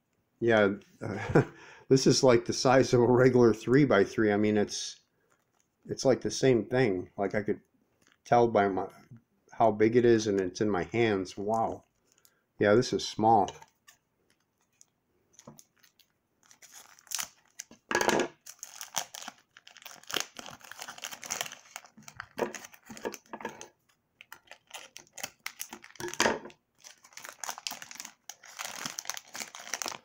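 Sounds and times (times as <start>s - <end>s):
plastic wrapping crinkling: 5.2s - 5.9s, 8.0s - 8.3s, 11.5s - 12.4s, 13.6s - 30.0s
plastic ripping: 13.6s - 30.0s.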